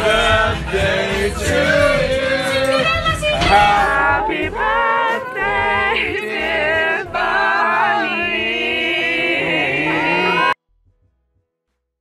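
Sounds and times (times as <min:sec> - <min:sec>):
low bass line: 0:00.0 - 0:07.3
layered voices singing: 0:00.0 - 0:10.6.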